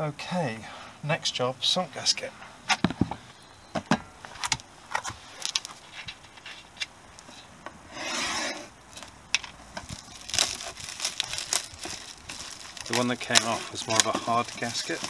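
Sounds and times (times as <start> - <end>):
plastic package rustling: 4.2 - 7.4, 8.9 - 15.0.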